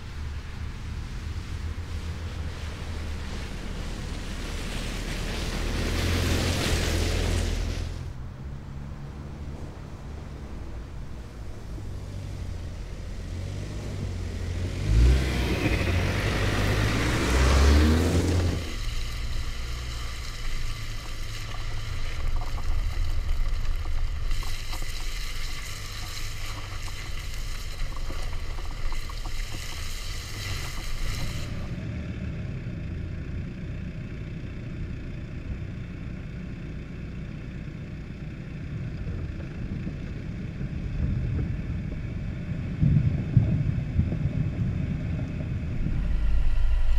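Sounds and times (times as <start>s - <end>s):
tyres rumbling on dirt: 0.0s - 34.8s, 37.8s - 46.9s
car engine revving: 1.1s - 32.6s.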